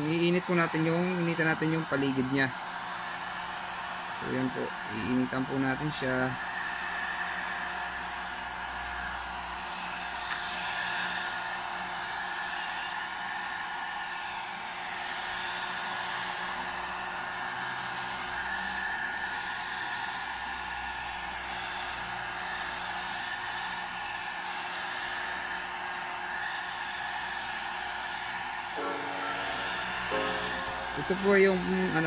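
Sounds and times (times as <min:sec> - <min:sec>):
heat gun fan rushing: 0:00.0 - 0:32.0
faint steady whine: 0:20.3 - 0:32.0.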